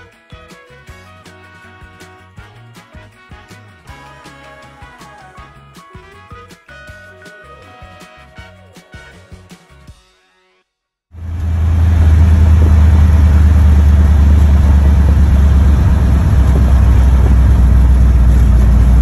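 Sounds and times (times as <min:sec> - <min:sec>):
truck engine drone inside cab: 0:11.2 - 0:19.0.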